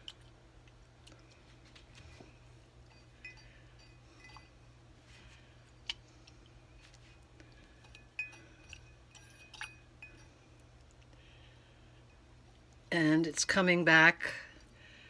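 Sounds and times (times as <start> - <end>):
chain clinking against glass: 2.8 - 4.6, 7.8 - 10.3.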